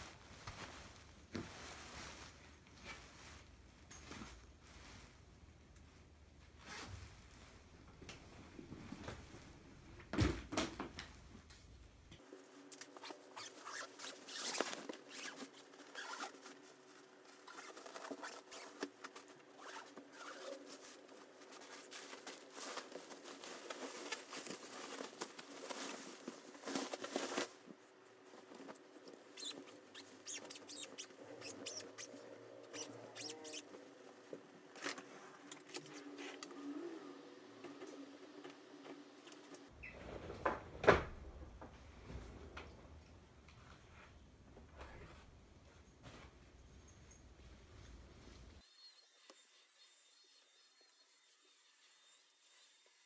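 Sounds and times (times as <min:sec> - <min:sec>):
bedding fabric rustling: 0:00.0 - 0:07.9.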